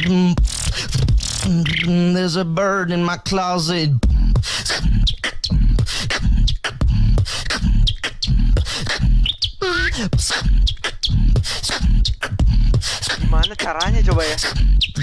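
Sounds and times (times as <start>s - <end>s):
person beatboxing into a microphone: 0.0s - 15.0s.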